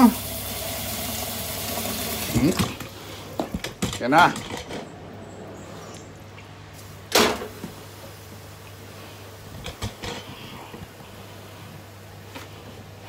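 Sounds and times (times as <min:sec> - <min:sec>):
kitchen utensils clattering: 0:02.2 - 0:05.0.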